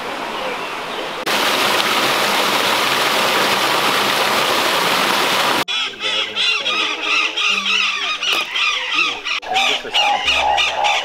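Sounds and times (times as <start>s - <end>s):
waterfall rushing: 1.2s - 5.6s
bird calls: 4.7s - 11.0s.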